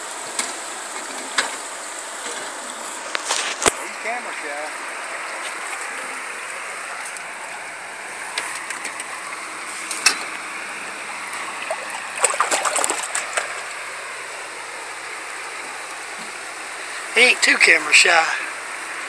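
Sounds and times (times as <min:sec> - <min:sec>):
fish splashing: 0:02.5 - 0:17.0
river current rushing: 0:02.6 - 0:19.0.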